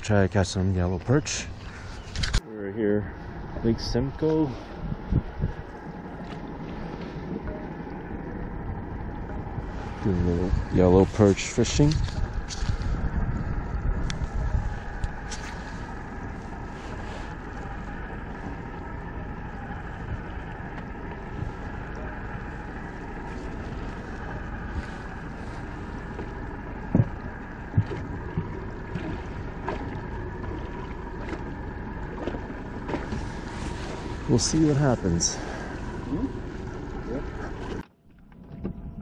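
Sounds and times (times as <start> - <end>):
outboard motor running: 0.0 - 39.0
sharp knocks on boat: 26.1 - 33.3.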